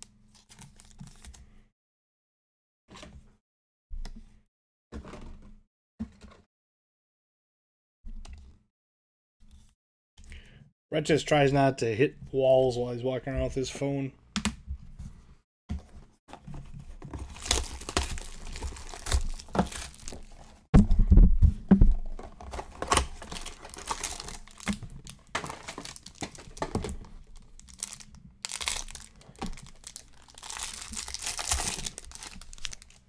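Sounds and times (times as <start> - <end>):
plastic wrapping crinkling and tearing: 17.2 - 20.6, 22.1 - 33.0
heavy low thump: 20.8 - 22.0
cards being handled: 27.7 - 33.0.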